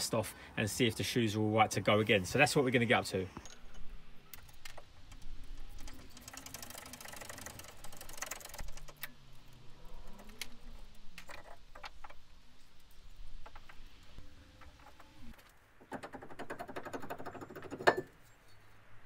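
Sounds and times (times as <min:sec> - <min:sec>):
ratchet spanner clicking: 0:05.2 - 0:09.2
metal clinks and knocks: 0:15.8 - 0:18.7.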